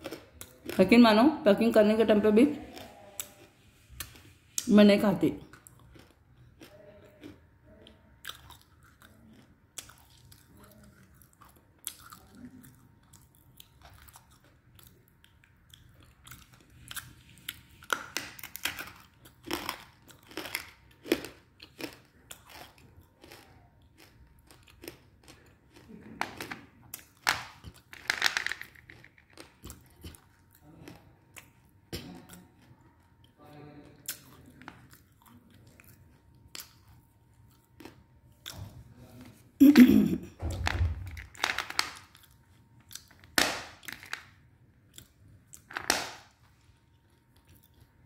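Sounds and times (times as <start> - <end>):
chewing and crunching clay: 0.0 - 1.0, 1.9 - 39.5, 40.4 - 48.0.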